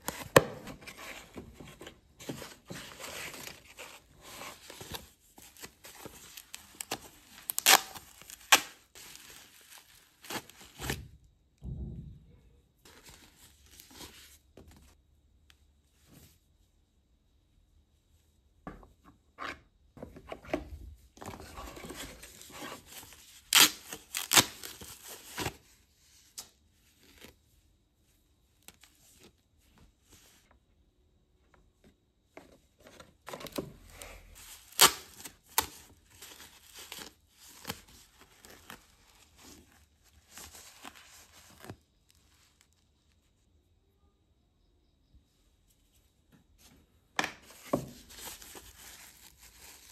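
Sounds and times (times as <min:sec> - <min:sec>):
plastic wrap crinkling: 0:02.6 - 0:11.0, 0:47.9 - 0:49.9.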